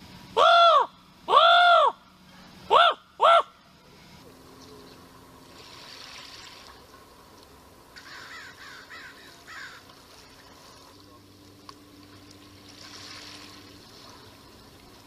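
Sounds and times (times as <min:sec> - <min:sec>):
bird calling: 0:00.4 - 0:03.7, 0:08.0 - 0:10.4
small waves lapping on shore: 0:05.4 - 0:07.4, 0:09.0 - 0:15.0.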